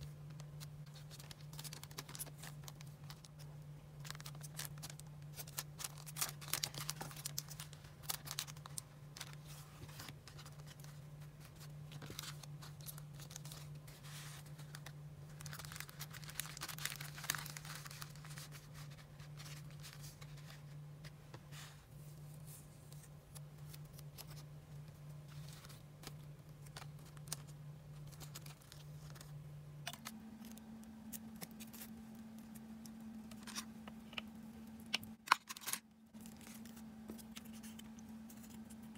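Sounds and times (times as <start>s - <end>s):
cellophane crinkling: 0.0s - 20.8s, 22.9s - 38.9s
steady low hum: 0.0s - 38.9s
paper rustling: 0.3s - 3.4s, 4.0s - 30.6s.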